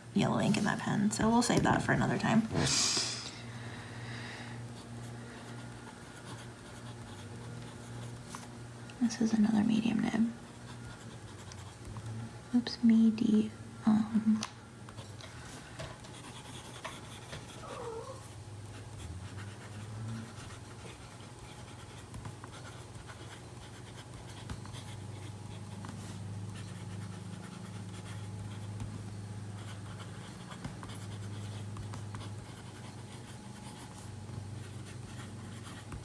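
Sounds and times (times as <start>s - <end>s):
low steady hum: 0.0s - 36.0s
pen nib scratching paper: 4.8s - 8.5s, 9.8s - 12.1s, 16.0s - 17.6s, 18.7s - 36.0s.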